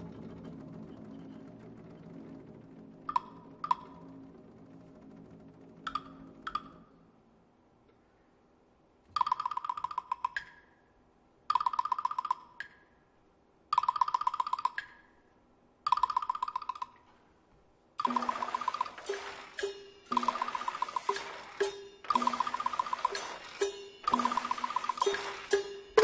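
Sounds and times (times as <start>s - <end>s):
rapid roll on pitched percussion: 0.0s - 7.5s, 18.0s - 26.0s.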